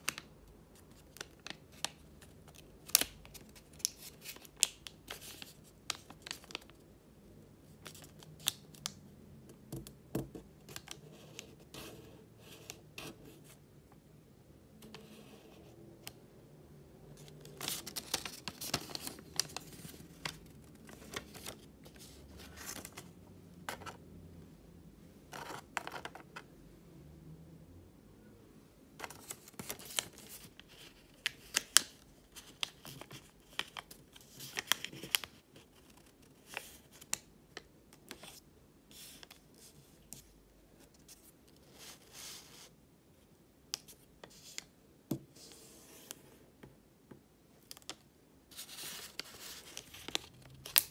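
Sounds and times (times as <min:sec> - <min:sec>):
paper rustling and crinkling: 0:17.2 - 0:24.0, 0:29.0 - 0:37.2, 0:47.7 - 0:50.9.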